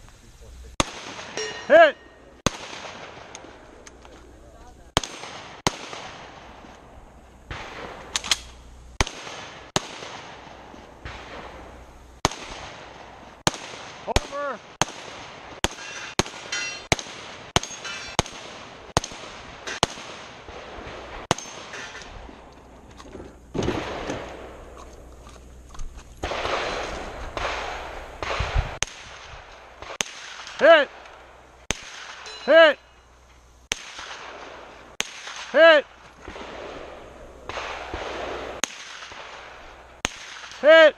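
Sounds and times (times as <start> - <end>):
rapid gunshots: 0.8 - 1.4, 4.9 - 6.5, 9.0 - 11.6, 12.2 - 21.7, 26.2 - 31.0, 33.7 - 40.9
steel targets ringing: 1.2 - 2.4, 15.7 - 16.9, 17.6 - 18.3, 21.3 - 22.1, 32.2 - 33.2.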